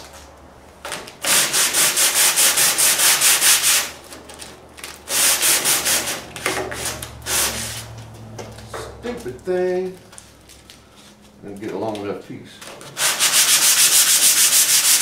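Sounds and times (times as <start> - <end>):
sandpaper scratching back and forth: 1.3 - 4.0, 5.1 - 7.9, 13.0 - 15.0.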